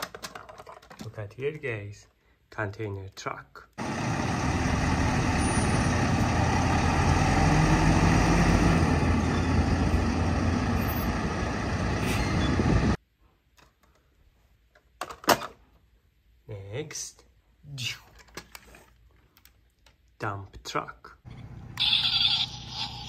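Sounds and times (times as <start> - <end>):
truck diesel engine running: 3.8 - 13.0.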